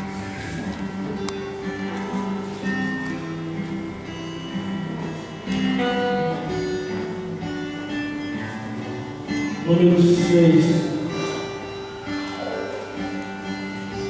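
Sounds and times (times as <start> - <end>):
slow plucked guitar music: 0.0 - 14.0.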